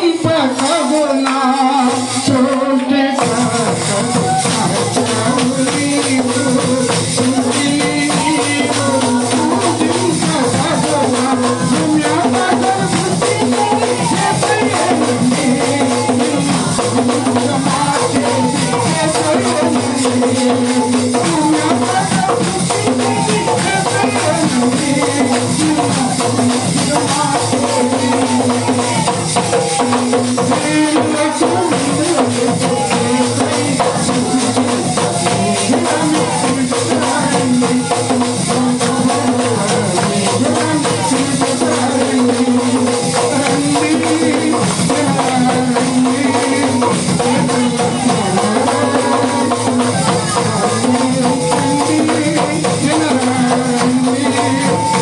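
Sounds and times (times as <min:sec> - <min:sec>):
instrumental backing: 0:00.0 - 0:55.0
man singing into a microphone: 0:00.0 - 0:55.0
rhythmic percussion beat: 0:00.0 - 0:55.0.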